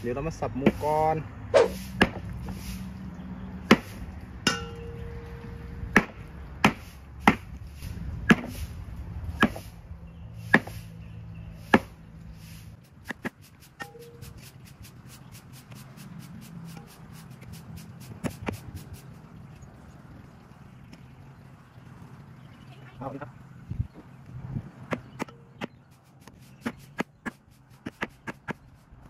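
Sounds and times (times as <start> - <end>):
knife chopping into wooden block: 8.3 - 8.6, 9.4 - 9.7, 10.5 - 10.8, 11.7 - 12.0.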